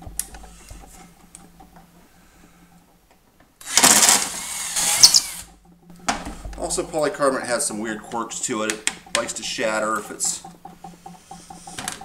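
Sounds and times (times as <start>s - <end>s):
power drill drilling plastic: 3.6s - 5.5s.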